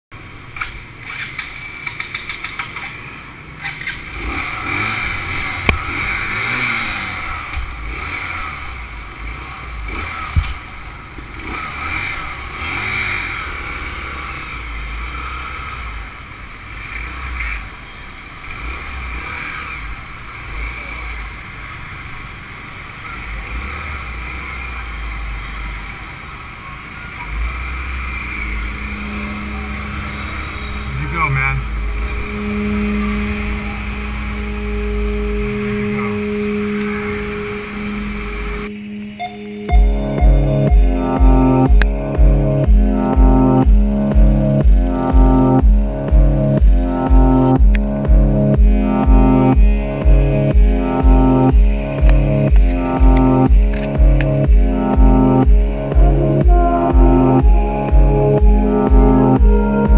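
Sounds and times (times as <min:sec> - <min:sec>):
quick clicks: 0:00.6 - 0:03.0
motorbike engine running: 0:00.8 - 0:59.9.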